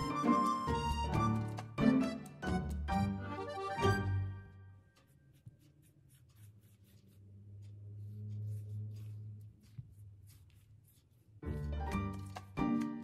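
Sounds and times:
brush rubbing on dough: 4.8s - 12.6s.

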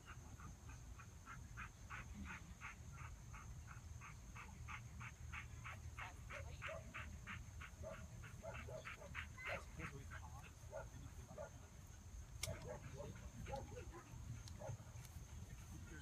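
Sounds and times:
dog barking: 5.6s - 7.1s, 7.7s - 10.0s, 10.7s - 11.6s, 12.4s - 14.8s.

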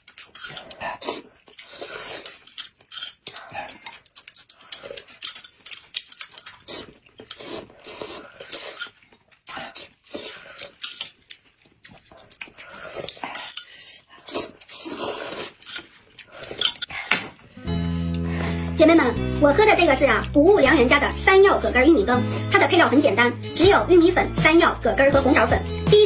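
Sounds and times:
noodles being slurped: 0.0s - 16.9s
spoon sipping porridge: 0.0s - 17.0s.

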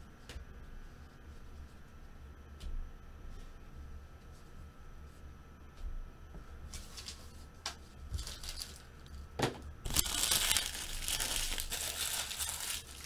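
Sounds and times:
wrappers crinkling by hand: 8.1s - 9.2s, 9.8s - 13.0s.

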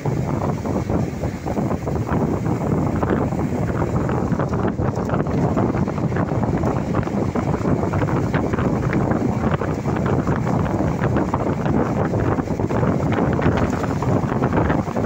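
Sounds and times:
moving vehicle rumble: 0.0s - 15.0s
small clicks and rattles: 13.4s - 14.9s.

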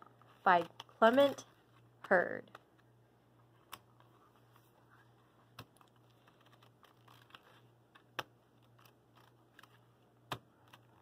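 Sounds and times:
faint steady hum: 0.0s - 11.0s
page turning: 3.6s - 11.0s.

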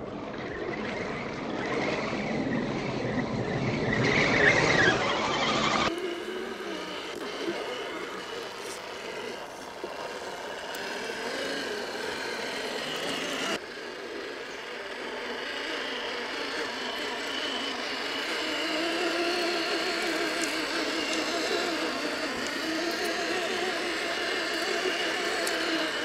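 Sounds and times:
electric motor whining: 0.0s - 26.0s.

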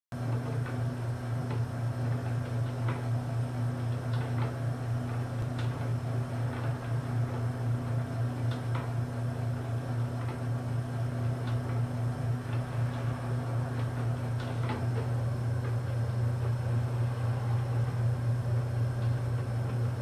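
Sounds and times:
electric motor hum: 0.2s - 20.0s
light mechanical ticks and clicks: 11.2s - 13.1s.

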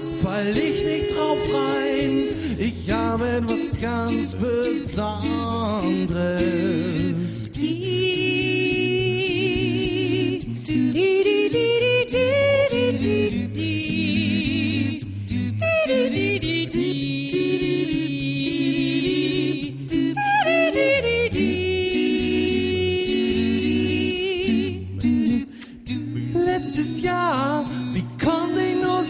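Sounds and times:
bass voice singing: 0.0s - 10.5s
vocal harmonies: 0.0s - 29.0s
vocal percussive clicks: 13.6s - 29.0s.

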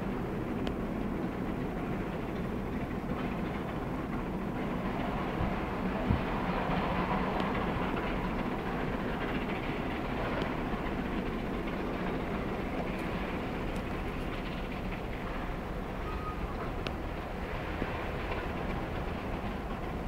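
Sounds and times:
steam train running: 0.0s - 20.0s.

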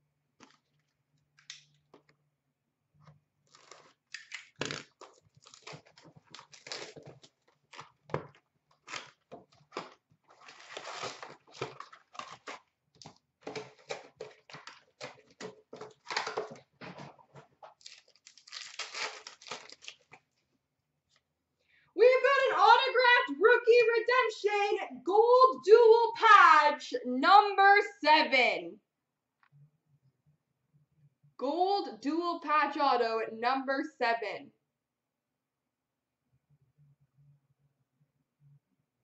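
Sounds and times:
foil card packs tearing and crinkling: 3.5s - 20.2s.

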